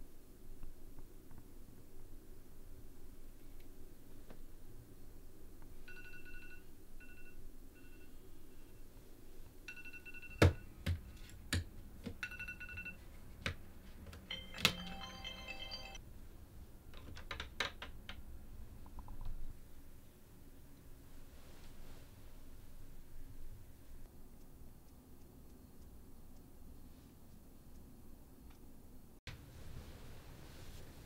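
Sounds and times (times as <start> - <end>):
phone alarm beeping: 9.7 - 10.8, 12.2 - 13.0, 14.3 - 16.0.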